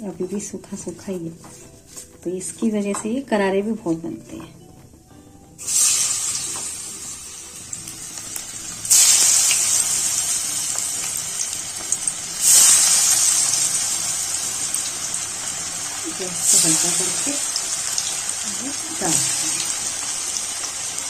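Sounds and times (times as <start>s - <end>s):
food deep-frying in hot oil: 5.6s - 21.0s.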